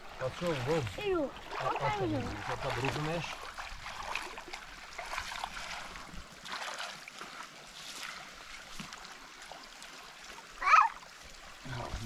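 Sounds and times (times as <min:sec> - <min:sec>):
water rushing: 0:00.0 - 0:12.0.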